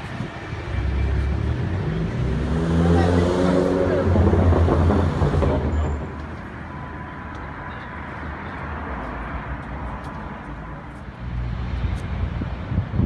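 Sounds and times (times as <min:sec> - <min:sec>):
car engine rumble: 0:00.0 - 0:07.8
city street noise: 0:00.0 - 0:13.0.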